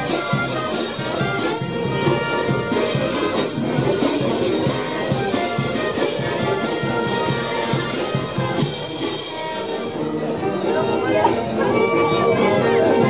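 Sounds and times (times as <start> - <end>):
brass band playing: 0.0 - 13.0.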